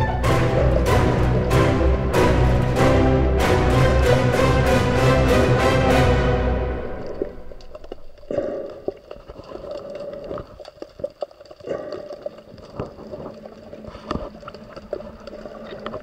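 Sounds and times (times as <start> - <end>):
underwater gurgling: 6.8 - 16.0
small clicks and pops: 7.6 - 16.0.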